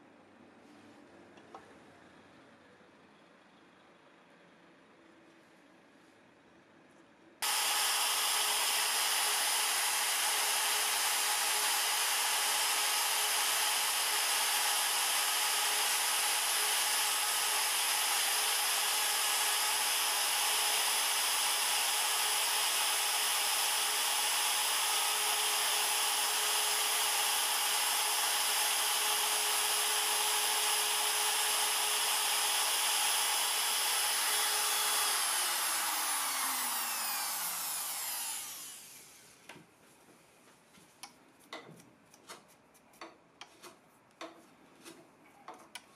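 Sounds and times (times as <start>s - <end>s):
router cutting wood: 7.4s - 39.2s.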